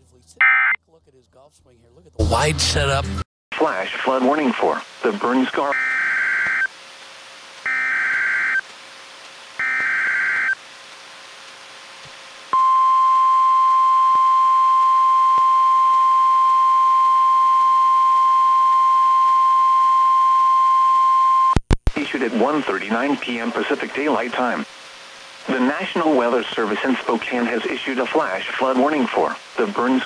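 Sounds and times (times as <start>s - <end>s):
steady warning alarm tone: 0.4s - 0.8s, 5.7s - 6.7s, 7.7s - 8.6s, 9.6s - 10.6s
screechy digital data bursts: 7.7s - 8.6s, 9.6s - 10.6s.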